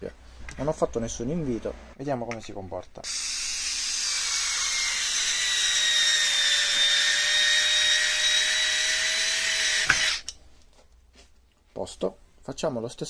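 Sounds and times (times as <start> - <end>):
cordless screwdriver whining: 3.0 - 10.4.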